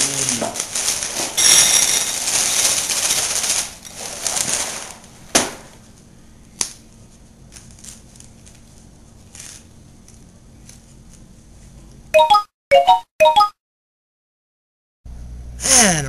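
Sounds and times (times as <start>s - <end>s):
cereal pouring into a bowl: 0.0s - 5.0s.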